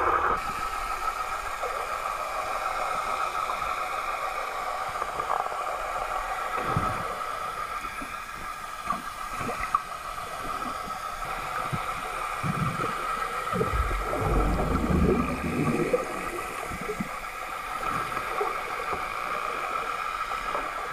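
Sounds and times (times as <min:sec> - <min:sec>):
underwater rushing water: 0:08.2 - 0:20.9
steady high hum: 0:13.6 - 0:16.8
low rumble: 0:13.6 - 0:17.0.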